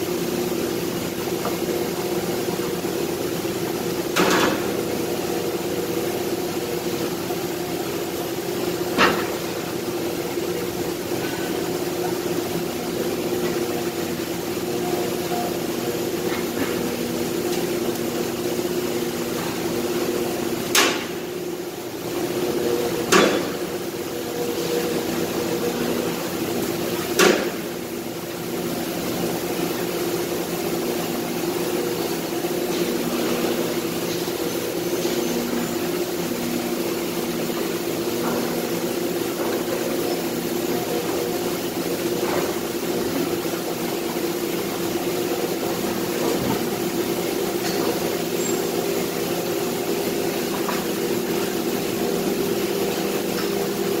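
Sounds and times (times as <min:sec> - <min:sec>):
factory machinery hum: 0:00.0 - 0:54.0.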